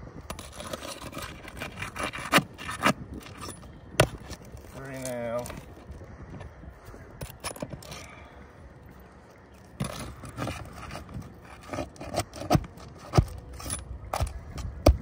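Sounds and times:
pry bar scraping under shingles: 0.2s - 6.6s, 9.7s - 14.8s.

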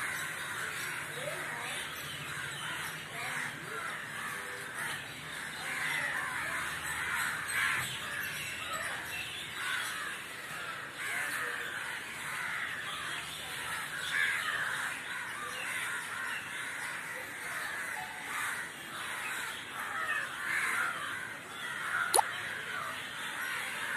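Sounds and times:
crows cawing: 9.6s - 23.9s.

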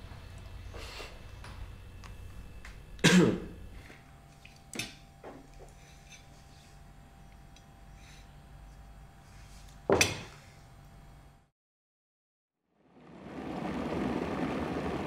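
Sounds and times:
man coughing: 3.0s - 3.6s.

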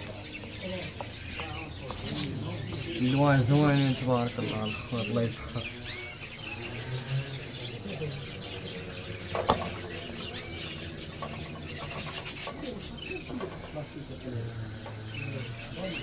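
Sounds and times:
canaries chirping: 0.0s - 16.0s.

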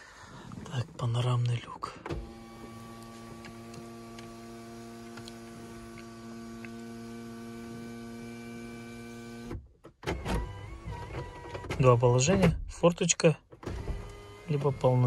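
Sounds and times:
electric motor hum: 2.2s - 9.5s, 13.8s - 15.0s.

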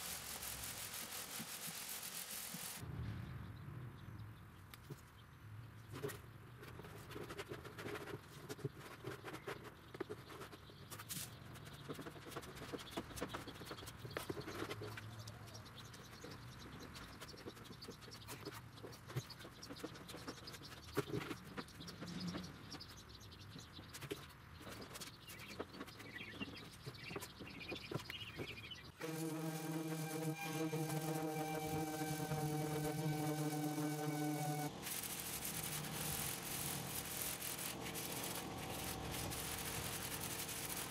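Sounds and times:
plastic spreader scraping: 29.0s - 40.9s.

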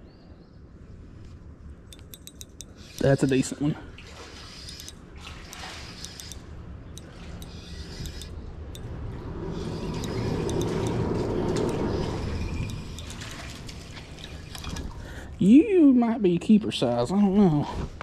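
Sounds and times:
fishing reel gears whirring: 1.9s - 3.6s, 4.3s - 14.9s.

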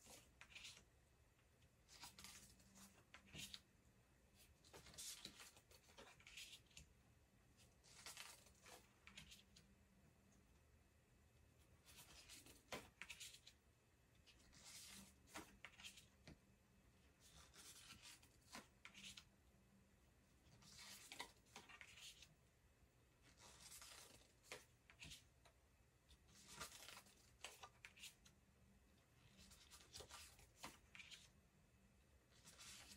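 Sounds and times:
cards sliding and rubbing: 7.8s - 9.5s, 17.2s - 19.3s, 20.5s - 22.3s, 23.3s - 25.3s, 26.3s - 28.3s.

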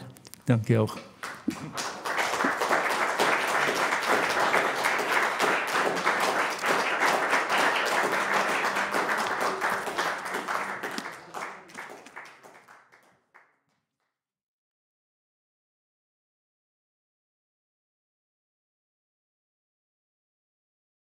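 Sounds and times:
audience applauding: 0.7s - 13.5s.

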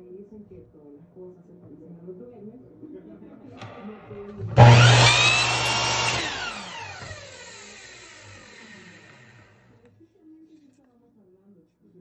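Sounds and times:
miter saw motor running: 3.6s - 9.7s
saw blade winding down: 3.6s - 9.7s.

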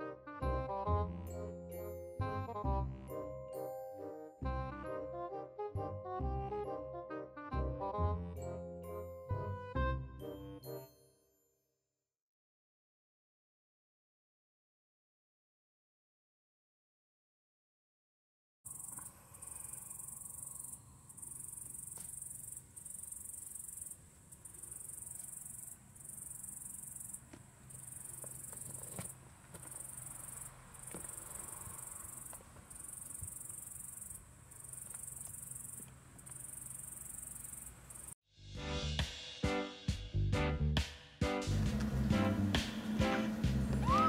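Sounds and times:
lively music: 0.0s - 11.0s, 38.5s - 44.0s
insects trilling: 18.7s - 38.2s.

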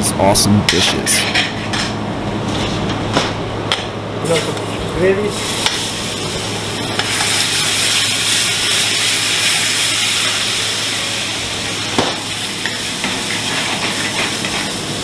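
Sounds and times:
food sizzling in a frying pan: 4.2s - 15.0s
ladle stirring in pan: 12.3s - 14.8s.

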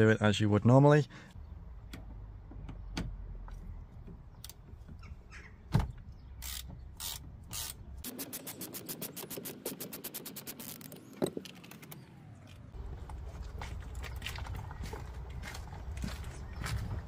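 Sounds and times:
ratchet clicking: 6.4s - 11.0s.

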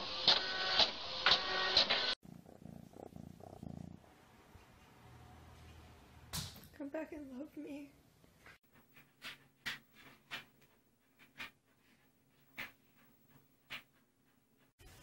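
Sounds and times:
hand stroking cat fur: 2.3s - 3.9s.

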